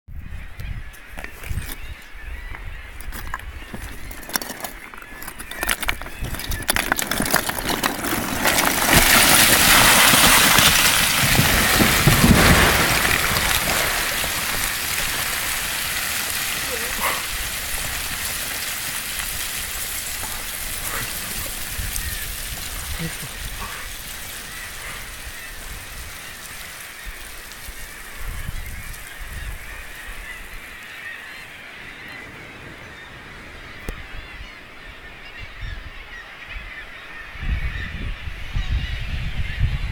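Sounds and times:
wind buffeting microphone: 0.1 - 39.9
rocks clattering: 3.0 - 31.1
stones and gravel pouring down: 3.1 - 31.6.

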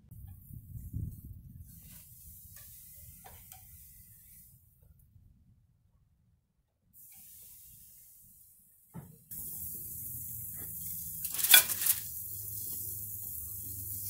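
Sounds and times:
steak sizzling on a grill: 9.4 - 14.0
metal tongs clattering on grate: 11.2 - 12.1.

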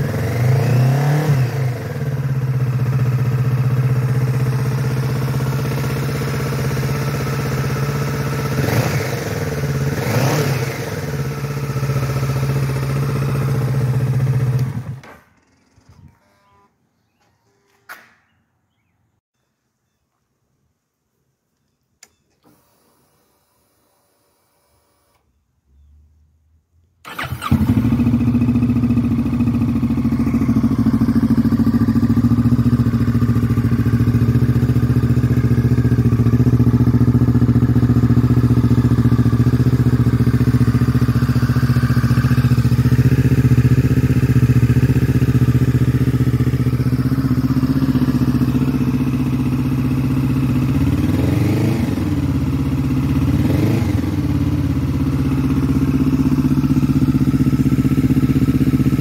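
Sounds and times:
motorcycle engine idling: 0.0 - 16.0, 27.1 - 59.0.

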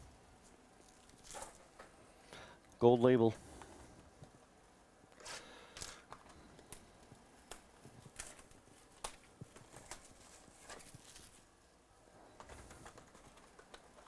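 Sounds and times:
trading cards rustling and clicking: 5.2 - 11.5, 12.3 - 14.0.

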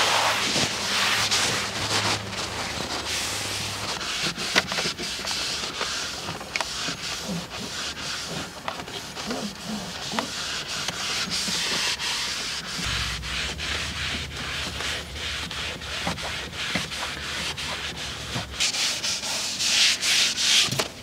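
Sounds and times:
rubbing and scrubbing strokes: 0.0 - 21.0
steady hiss: 12.0 - 19.8
low steady hum: 12.8 - 18.6.

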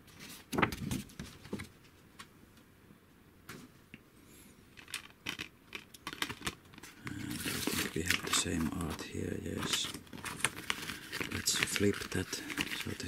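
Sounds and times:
paper poster rustling: 0.0 - 2.0, 4.8 - 13.0.

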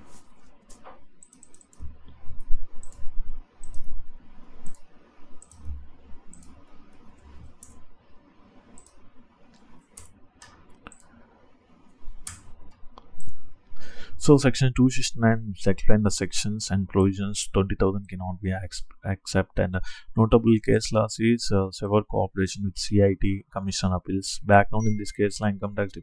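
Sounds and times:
computer mouse clicking: 0.2 - 7.8, 8.7 - 11.2, 11.8 - 13.4.

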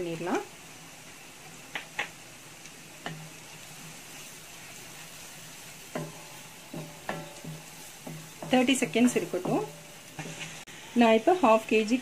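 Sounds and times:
oil sizzling in a pan: 0.0 - 12.0
wooden spatula stirring: 3.0 - 10.7
spatula knocking on pan: 5.9 - 10.4.

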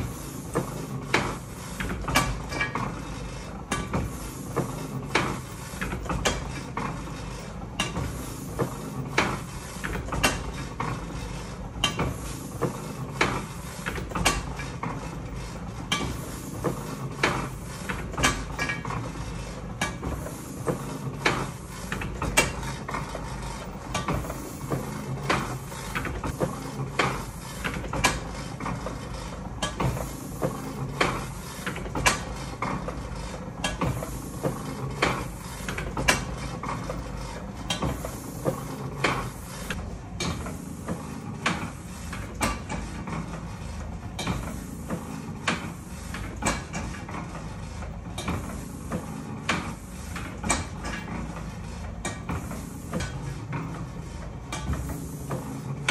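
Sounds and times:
printing press clacking: 0.0 - 55.9.

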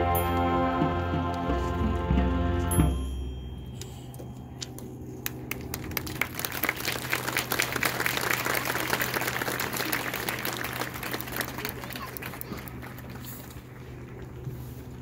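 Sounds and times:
audience applauding: 5.2 - 14.4.

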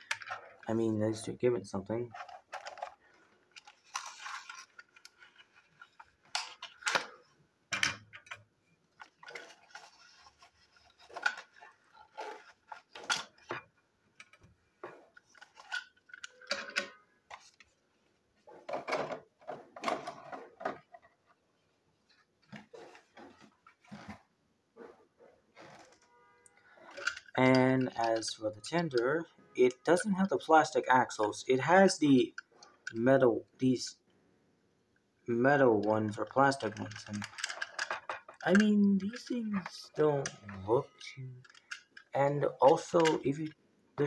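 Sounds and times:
plastic toy clicks and knocks: 36.1 - 40.6, 41.4 - 43.4.

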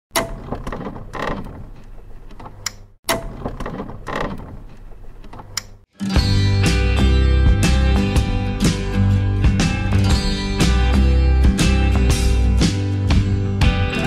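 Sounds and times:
sharp click: 4.7 - 5.8
music: 5.9 - 14.0.

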